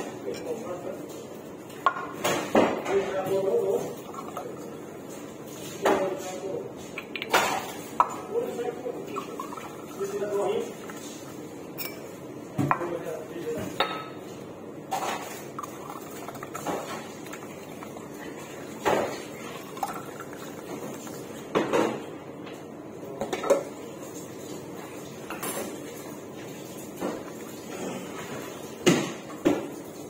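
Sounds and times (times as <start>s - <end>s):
mixture being poured: 3.3s - 12.3s, 14.9s - 21.6s, 23.8s - 30.0s.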